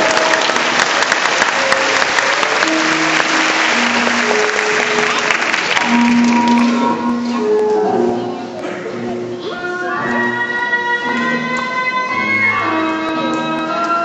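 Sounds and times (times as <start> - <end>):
audience applauding: 0.0 - 7.0
music with held notes: 0.0 - 14.0.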